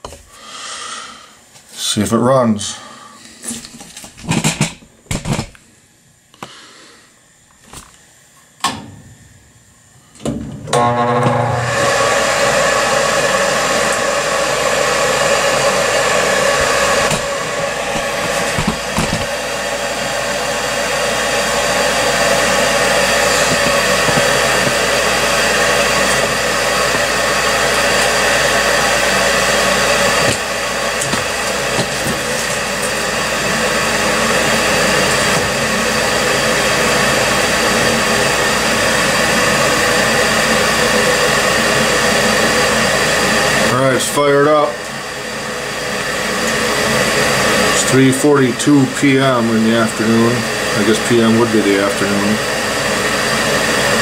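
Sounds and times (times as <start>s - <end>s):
furnace fan motor whirring: 0.0s - 54.0s.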